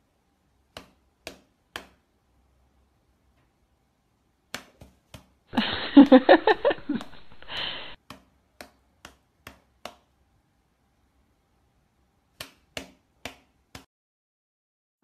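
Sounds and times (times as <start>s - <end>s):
cat paw slapping hand: 4.5s - 5.4s, 6.0s - 10.1s, 12.4s - 13.9s.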